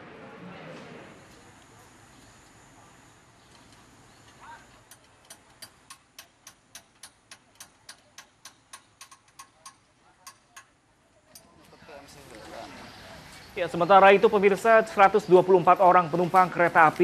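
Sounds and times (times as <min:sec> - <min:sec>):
faint regular clicking: 0:03.4 - 0:11.5.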